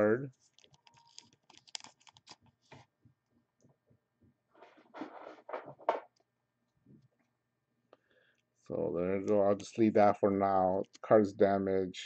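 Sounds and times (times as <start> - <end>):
plastic sleeve rustling: 0.3 - 2.9.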